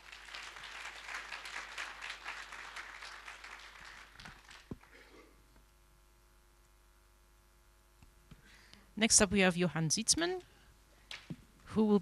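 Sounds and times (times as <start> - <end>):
audience applauding: 0.0 - 5.0.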